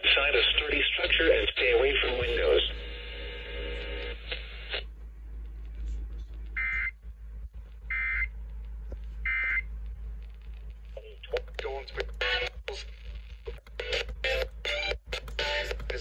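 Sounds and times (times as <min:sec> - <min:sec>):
radio buzz: 0:00.0 - 0:07.0, 0:09.2 - 0:16.0.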